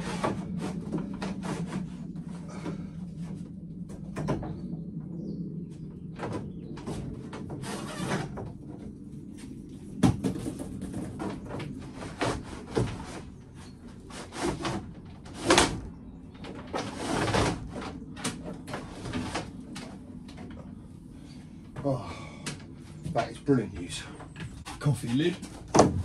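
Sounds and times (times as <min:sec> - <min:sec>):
cable scraping against panels: 0:00.0 - 0:02.4, 0:06.8 - 0:09.5, 0:10.6 - 0:21.9, 0:22.9 - 0:26.0
steady low hum: 0:00.0 - 0:26.0.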